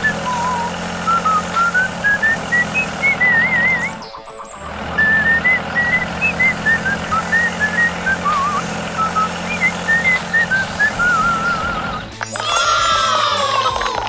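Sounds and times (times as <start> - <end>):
low engine hum: 0.0 - 12.2
whistled tune: 0.0 - 12.6.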